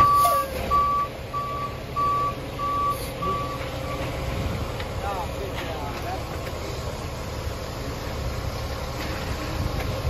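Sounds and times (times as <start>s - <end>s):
truck backup alarm beeping: 0.0s - 4.2s
diesel engine running: 0.0s - 10.0s.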